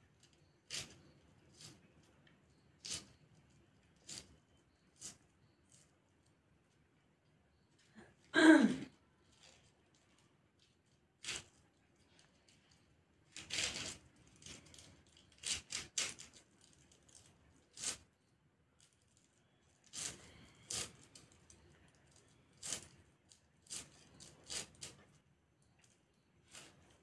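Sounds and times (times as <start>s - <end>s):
blade cutting cauliflower: 0.2s - 2.0s, 2.8s - 5.9s, 11.2s - 11.6s, 13.3s - 18.0s, 19.8s - 25.2s.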